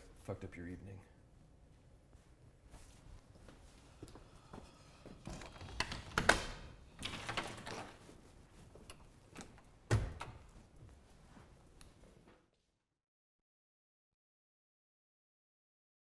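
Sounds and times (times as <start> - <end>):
door shutting thud: 9.9 - 10.4.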